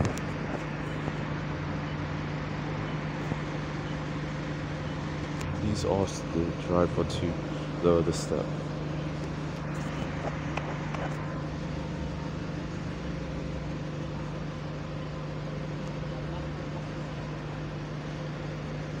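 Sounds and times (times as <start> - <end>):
bus engine idling: 0.0 - 19.0.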